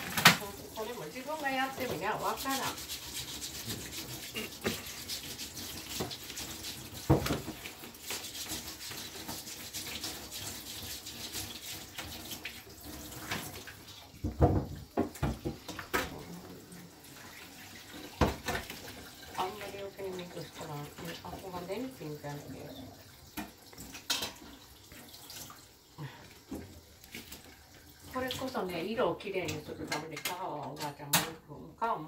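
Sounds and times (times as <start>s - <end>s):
knocks of things in a sink: 0.0s - 0.5s, 7.0s - 7.7s, 14.2s - 16.2s, 18.2s - 18.9s, 29.4s - 31.4s
tap running into a sink: 5.7s - 16.3s, 18.0s - 19.2s, 23.3s - 25.5s, 26.4s - 27.5s.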